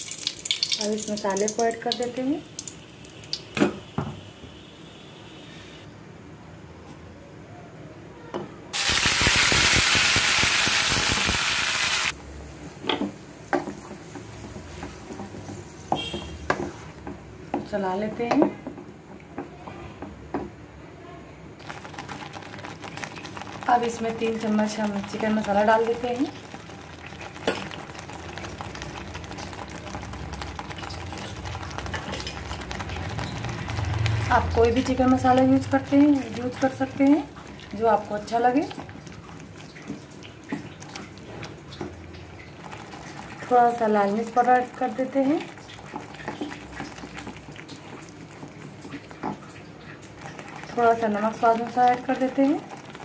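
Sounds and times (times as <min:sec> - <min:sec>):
paste sizzling in hot oil: 0:08.8 - 0:12.2.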